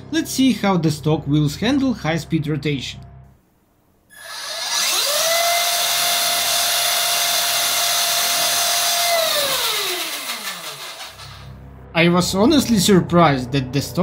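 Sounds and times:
electric motor and gears whining: 4.1 - 11.6.

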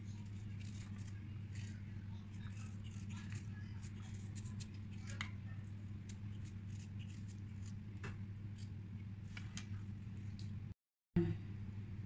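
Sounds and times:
steady low hum: 0.0 - 12.0
knife scraping ginger peel: 6.0 - 7.8.

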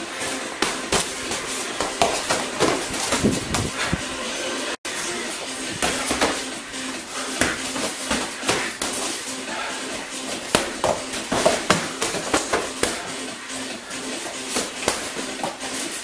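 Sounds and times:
punches and kicks landing: 0.6 - 4.0, 5.7 - 6.6, 7.3 - 9.2, 10.3 - 13.1, 14.5 - 15.6.

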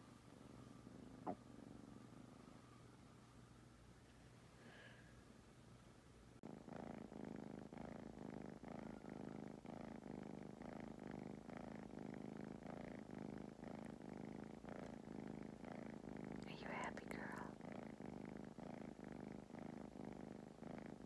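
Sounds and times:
kitten purring: 0.0 - 5.2, 6.3 - 21.0.

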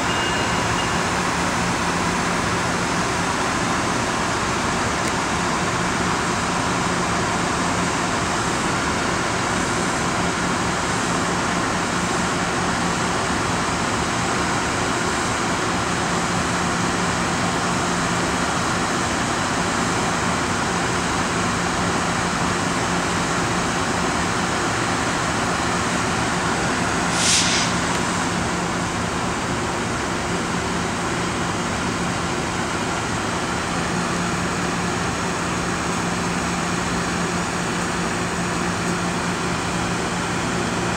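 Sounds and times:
train rolling slowly: 0.0 - 40.9
short sharp hiss: 27.0 - 28.4.

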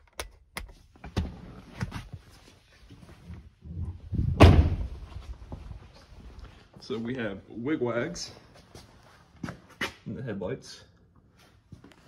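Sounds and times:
truck door slamming shut: 4.4 - 4.9.

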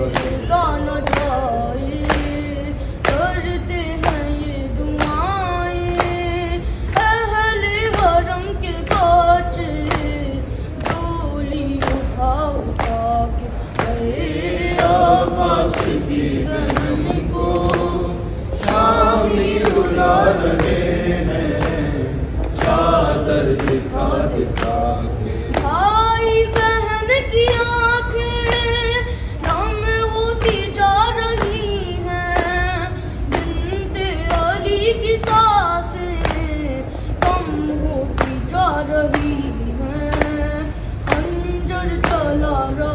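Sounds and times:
group of voices singing: 0.0 - 42.9
hands slapping chests: 18.6 - 24.9.

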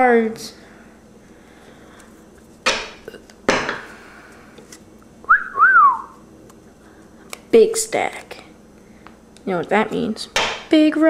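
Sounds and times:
short rising falling whistle: 5.3 - 6.2.

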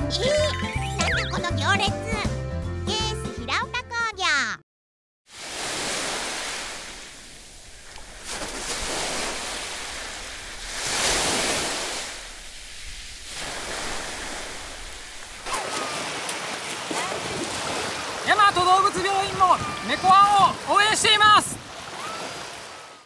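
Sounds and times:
small waves washing onto shore: 5.3 - 23.0.

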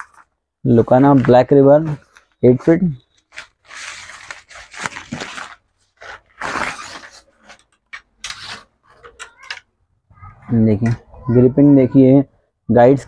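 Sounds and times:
plastic packaging crinkling: 0.0 - 0.3, 3.0 - 9.4.

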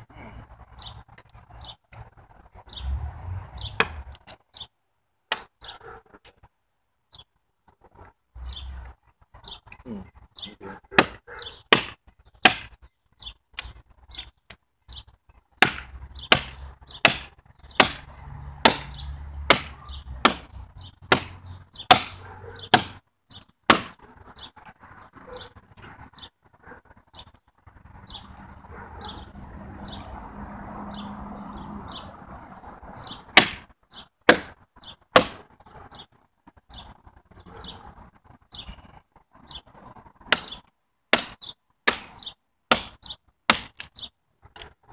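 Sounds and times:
wood chopping strikes: 3.7 - 4.4, 5.3 - 5.5, 10.9 - 12.8, 15.6 - 23.0, 23.6 - 24.0, 33.3 - 35.4, 40.3 - 43.9.

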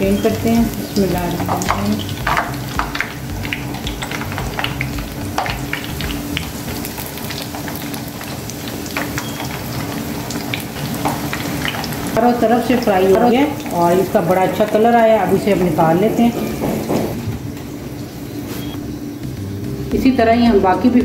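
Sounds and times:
food sizzling in oil: 0.0 - 17.1
crackling pops: 1.0 - 12.2.

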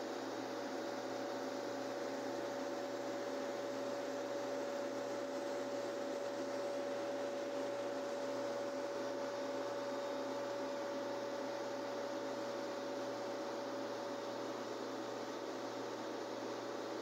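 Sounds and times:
refrigeration machinery humming: 0.0 - 17.0.

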